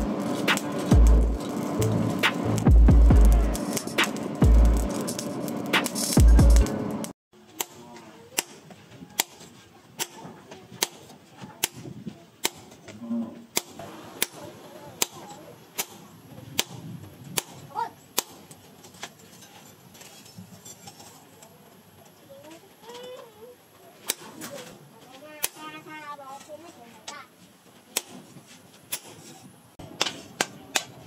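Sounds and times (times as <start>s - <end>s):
hammer striking chisel on hot steel: 0.0s - 6.7s, 7.5s - 10.2s, 10.8s - 11.8s, 12.4s - 12.8s, 13.5s - 14.4s, 15.0s - 16.0s, 16.6s - 19.7s, 28.0s - 28.3s, 28.9s - 31.0s.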